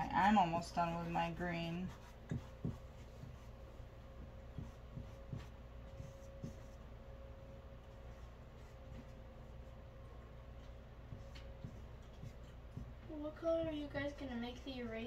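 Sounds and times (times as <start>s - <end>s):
low room hum: 0.0s - 15.0s
paintbrushes scratching on canvas: 0.3s - 6.8s, 11.1s - 13.2s.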